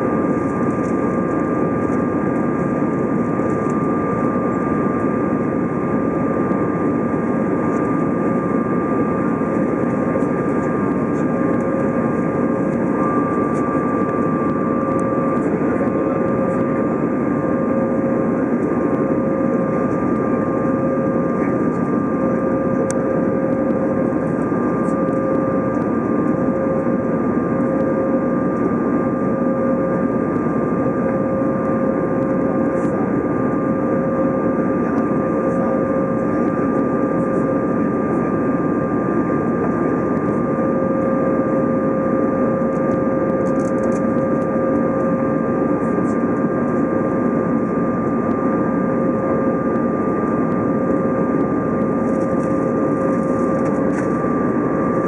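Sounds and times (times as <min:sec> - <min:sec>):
jet engines: 0:00.0 - 0:55.0
steady whining tones: 0:00.0 - 0:55.0
airplane cabin air rush: 0:52.0 - 0:54.8.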